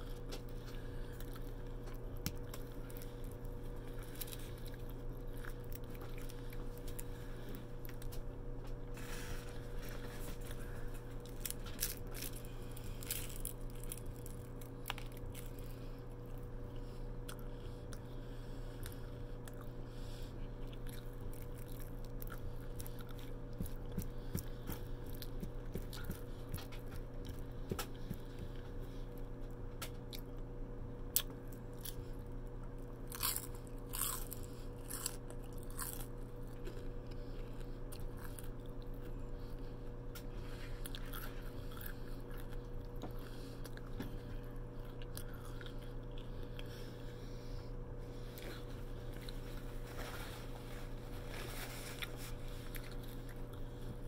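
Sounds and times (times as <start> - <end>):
low hum: 0.0 - 54.0
person chewing crunchy food: 0.0 - 54.0.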